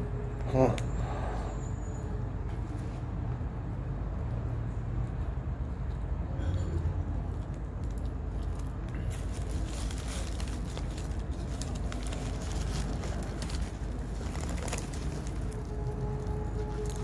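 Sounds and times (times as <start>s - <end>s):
paper wrapper crinkling: 8.5s - 17.0s.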